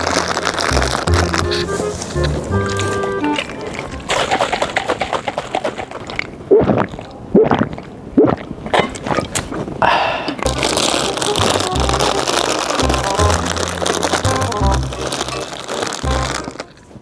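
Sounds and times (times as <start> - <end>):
background music with bass: 0.0 - 4.1, 10.5 - 16.6
loud gulping: 3.6 - 12.0.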